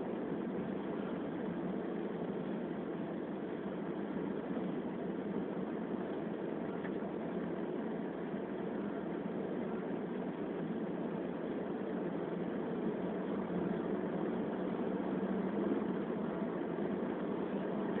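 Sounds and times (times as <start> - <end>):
car cabin road noise: 0.0 - 18.0.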